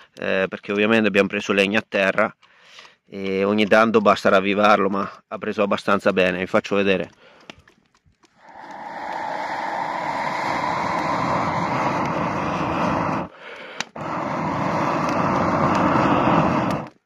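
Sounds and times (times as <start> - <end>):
air blown through metal tube: 8.4 - 17.0.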